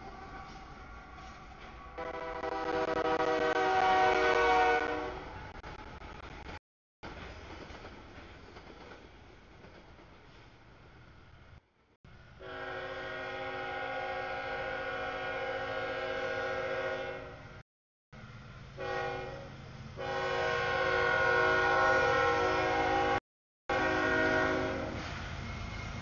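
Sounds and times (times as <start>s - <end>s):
low rumble of approaching train: 0.0s - 17.6s, 18.2s - 26.0s
locomotive air horn blasts: 1.9s - 5.3s, 12.4s - 17.6s, 18.8s - 25.2s.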